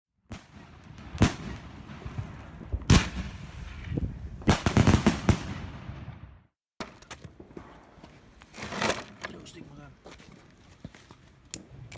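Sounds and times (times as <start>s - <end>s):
fireworks bangs: 0.3s - 8.0s.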